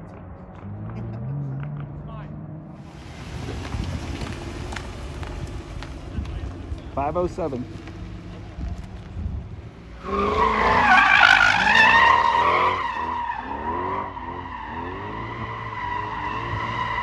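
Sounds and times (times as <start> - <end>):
car engine revving: 0.0 - 17.0
tyres squealing: 10.0 - 17.0.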